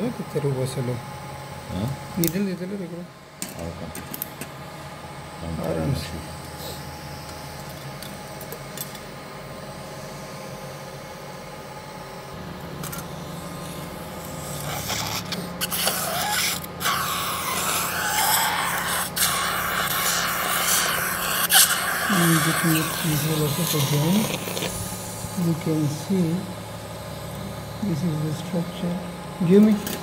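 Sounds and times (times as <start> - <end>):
equipment hum: 0.0 - 30.0
surgical suction hissing: 14.3 - 26.1.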